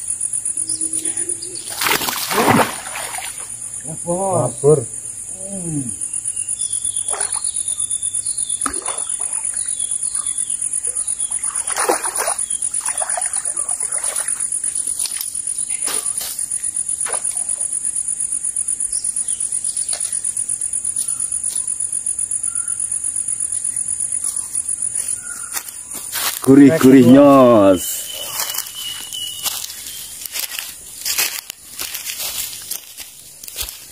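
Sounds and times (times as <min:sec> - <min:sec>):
insect trill: 0:00.0 - 0:33.9
fish splashing: 0:01.6 - 0:03.6, 0:08.6 - 0:09.6, 0:10.8 - 0:14.5.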